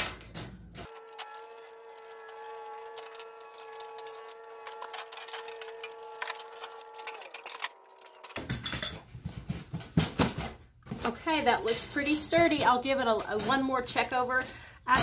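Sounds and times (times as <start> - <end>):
wrench clinking on metal: 8.4 - 9.0.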